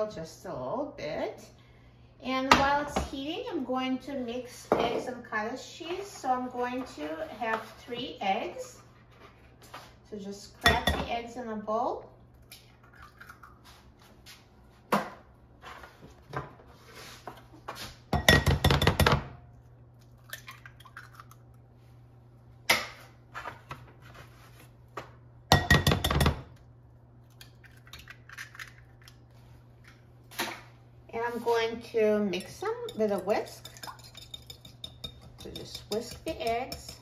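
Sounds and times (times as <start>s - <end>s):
eggs cracking on glass bowl: 20.1s - 21.6s, 27.3s - 29.2s.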